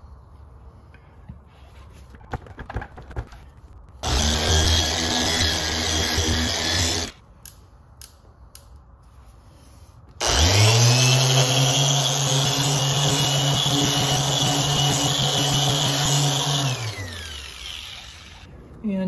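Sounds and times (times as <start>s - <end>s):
orbital polisher running: 4.0s - 7.1s, 10.2s - 18.5s.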